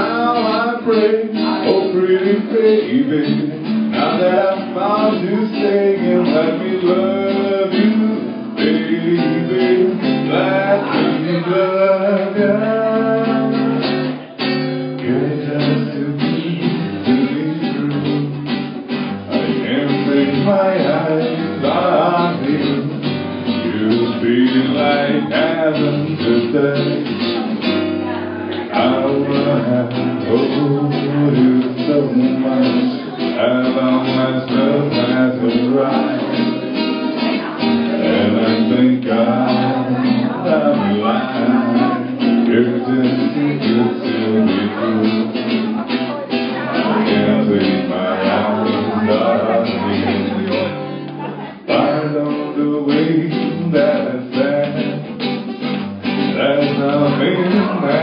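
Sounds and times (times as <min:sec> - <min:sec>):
acoustic guitar strumming: 0:00.0 - 0:58.0
man singing: 0:00.0 - 0:58.0.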